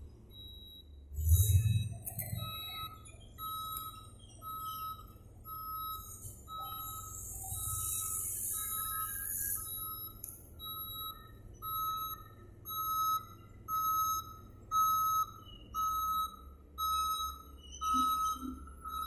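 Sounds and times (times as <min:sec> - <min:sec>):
reversing alarm beeping: 0:00.3 - 0:19.0.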